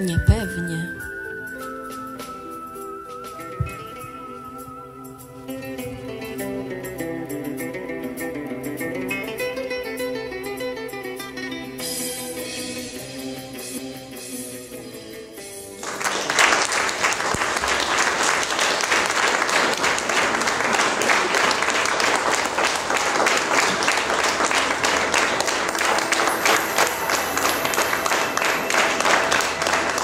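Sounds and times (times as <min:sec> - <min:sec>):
soft plucked guitar music: 0:00.0 - 0:15.8
audience applause: 0:15.8 - 0:30.0.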